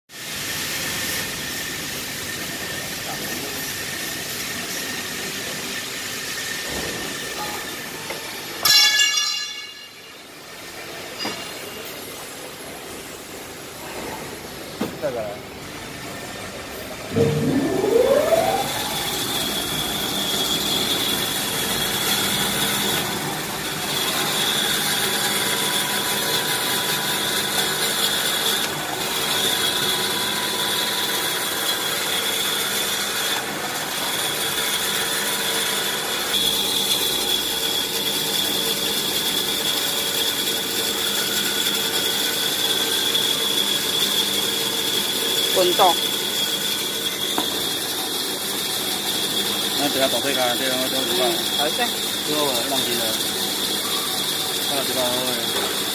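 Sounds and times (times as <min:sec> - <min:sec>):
machine motor whine: 0:11.8 - 0:55.9
mechanical running noise: 0:15.5 - 0:31.7.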